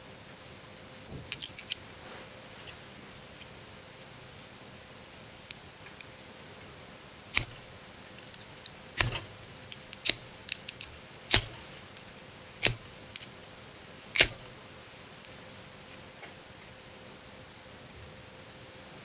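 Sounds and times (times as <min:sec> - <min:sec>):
striker scraping fire-starter rod: 0:07.3 - 0:13.3, 0:14.2 - 0:14.5.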